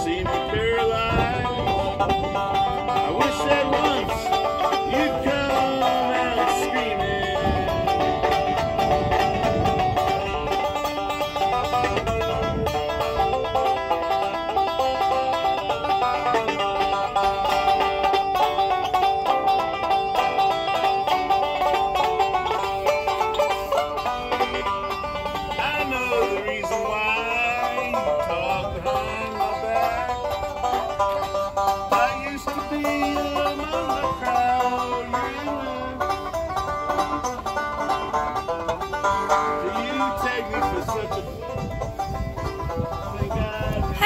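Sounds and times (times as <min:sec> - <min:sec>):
banjo picking: 0:00.0 - 0:44.0.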